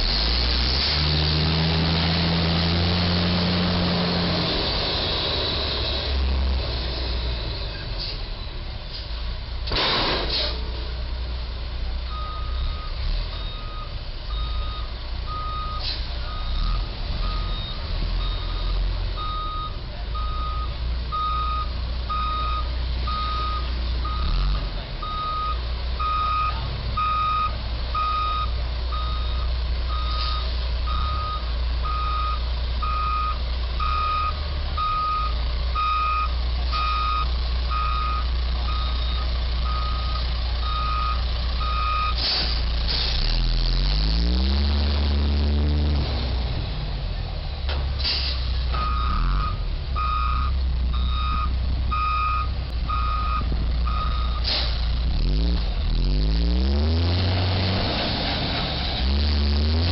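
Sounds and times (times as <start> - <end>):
truck backup alarm beeping: 12.0 - 42.6, 48.0 - 54.8
low steady rumble: 48.4 - 55.9.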